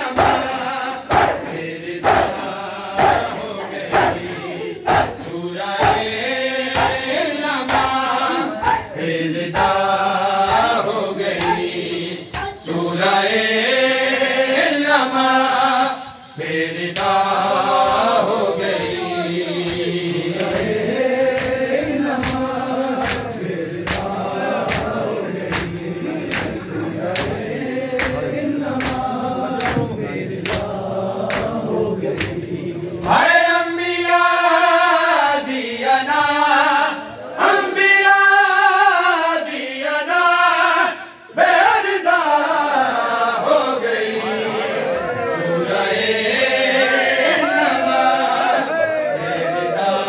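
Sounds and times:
men chanting in unison: 0.0 - 50.0
chest-beating slaps: 0.1 - 4.3, 4.9 - 12.6, 19.6 - 33.2.

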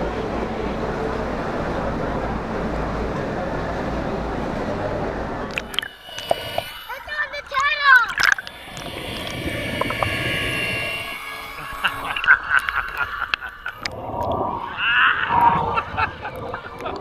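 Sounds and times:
pool water sloshing and bubbling: 0.0 - 17.0
water splashing: 5.4 - 17.0.

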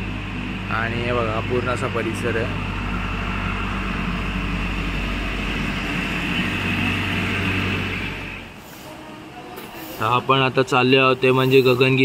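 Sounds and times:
steady mechanical hum: 0.0 - 12.0
hiss: 8.6 - 10.2, 11.3 - 12.0.

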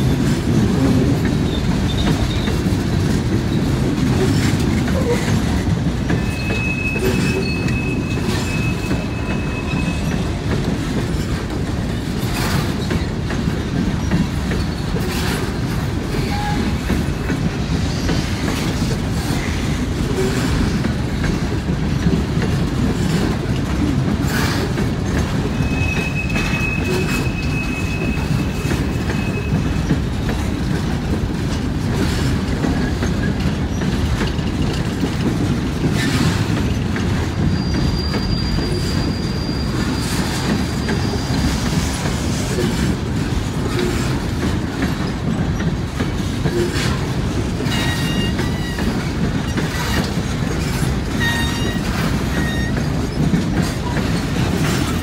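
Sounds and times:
freight train rumbling past: 0.0 - 55.0
wheels clacking on track: 0.0 - 55.0
high wheel squeal: 6.1 - 10.4, 25.5 - 29.9, 37.4 - 41.5, 47.7 - 50.0, 50.6 - 53.2.

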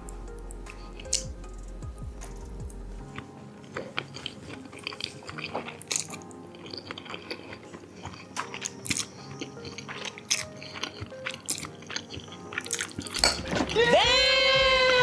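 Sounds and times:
quiet background music: 0.0 - 15.0
spaghetti slurped and chewed: 3.6 - 13.4.

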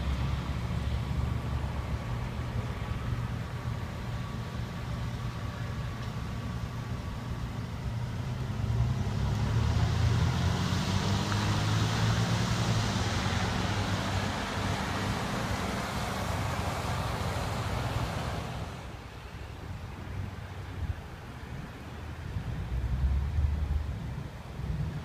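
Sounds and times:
car driving past on slushy snow: 8.5 - 18.9.

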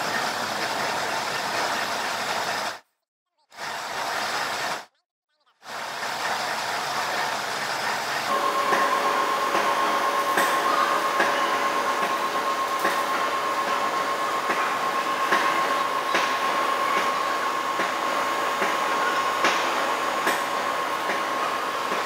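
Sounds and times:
lathe cutting steel: 5.8 - 22.0
high whine: 8.3 - 22.0.

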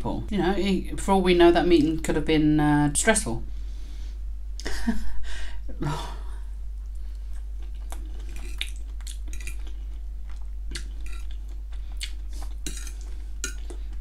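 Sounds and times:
low steady hum: 0.0 - 14.0
wet chewing with clicks: 6.8 - 14.0
metal fork scraping on plate: 12.6 - 13.6.

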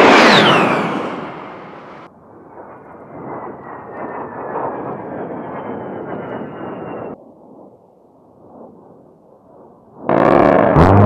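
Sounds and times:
high jet engine whine: 0.0 - 7.7
jet flying past: 0.0 - 7.7.

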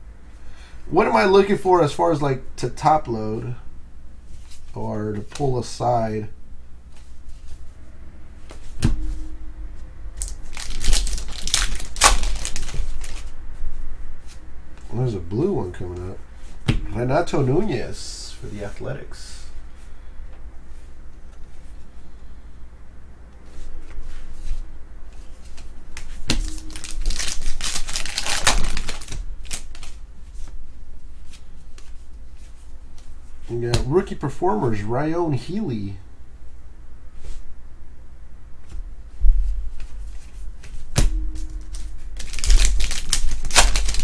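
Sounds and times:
wrapper crinkling: 10.2 - 13.3, 26.6 - 30.0, 42.2 - 44.0.

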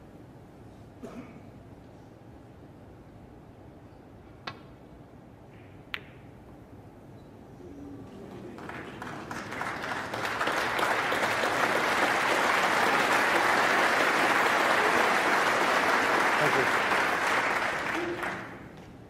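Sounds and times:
audience applauding: 8.0 - 18.8.

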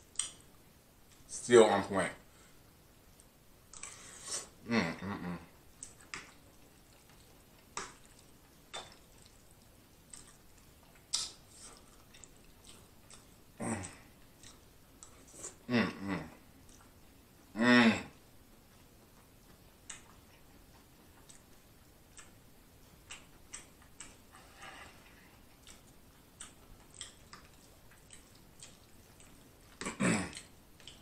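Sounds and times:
soft chewing: 0.0 - 1.4, 2.2 - 4.6, 5.2 - 31.0
lip-smacking clicks: 0.1 - 1.2, 5.8 - 15.2, 19.0 - 24.3, 25.5 - 31.0
man humming in enjoyment: 4.6 - 5.4, 15.7 - 16.4, 17.6 - 18.2.

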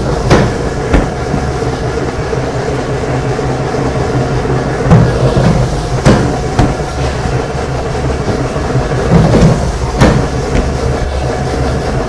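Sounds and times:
dough sheeter rumbling: 0.0 - 12.0
sharp knocks: 0.2 - 1.6, 4.9 - 7.3, 8.2 - 11.1.

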